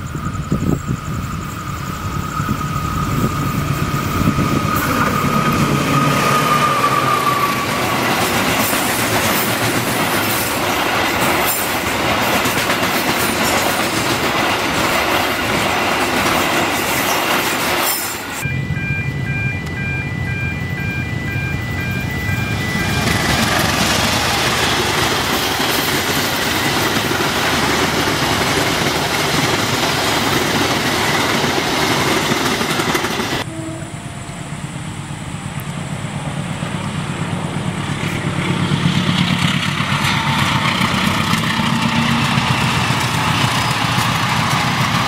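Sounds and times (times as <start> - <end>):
freight train rumbling and clattering: 0.0 - 33.5, 34.2 - 45.0
high steady tone: 18.2 - 27.4, 33.4 - 38.6
repeating ringing tone: 18.4 - 25.0.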